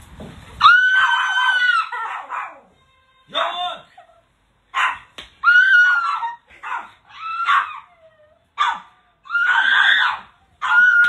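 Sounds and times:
dog whining yelps: 0.6 - 2.7, 4.8 - 11.0.

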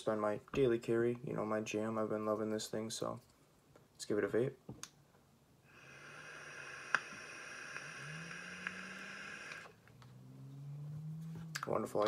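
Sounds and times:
air hissing through vape: 5.7 - 9.8
low hum: 6.3 - 11.7.

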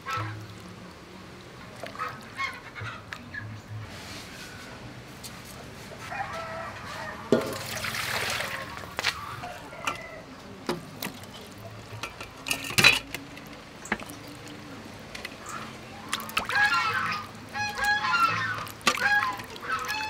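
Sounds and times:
water splashing in metal basin: 7.3 - 9.5, 11.0 - 20.0
poultry calling: 16.4 - 20.0.

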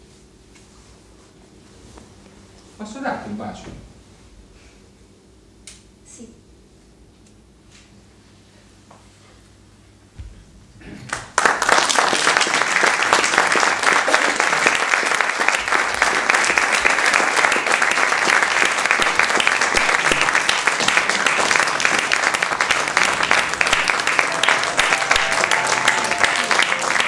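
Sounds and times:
audience applauding: 11.1 - 27.0.

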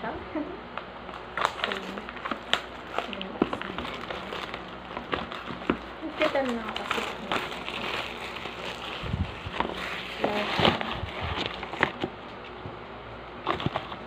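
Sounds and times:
cardboard packaging rustling: 1.1 - 12.7, 13.3 - 14.0.

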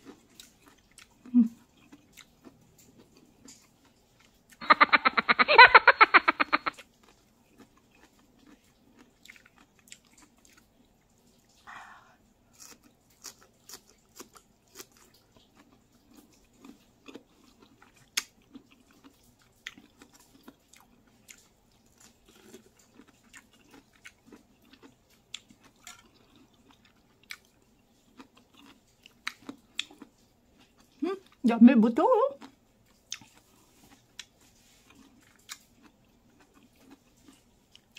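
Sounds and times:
wet chewing and lip-smacking: 0.0 - 5.4, 6.2 - 31.4, 32.4 - 37.9.

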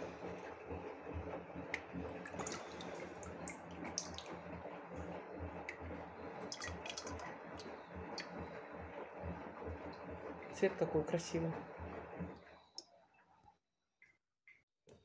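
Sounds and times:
wine dripping through cloth strainer: 1.8 - 4.4, 5.6 - 8.4.

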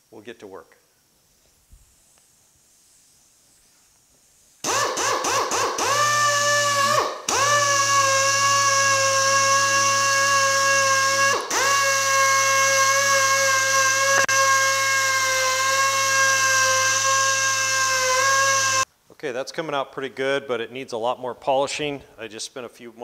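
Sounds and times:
exhaust air hiss: 0.0 - 14.8
air polisher whining: 4.6 - 18.9.

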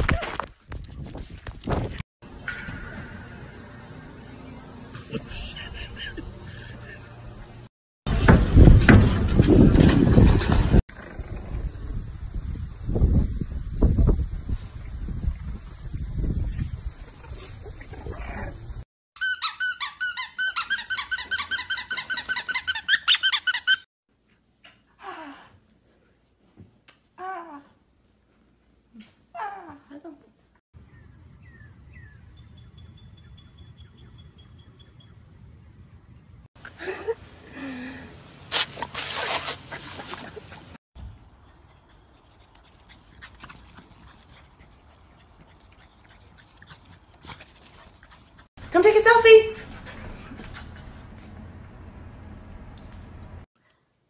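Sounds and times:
high-pitched squeaks: 19.2 - 23.9.

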